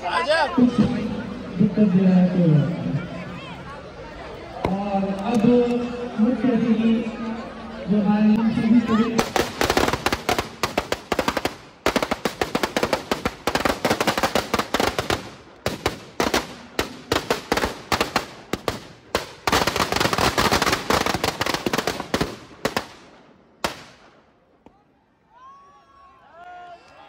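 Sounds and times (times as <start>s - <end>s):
firecrackers crackling: 9.2s - 24.8s.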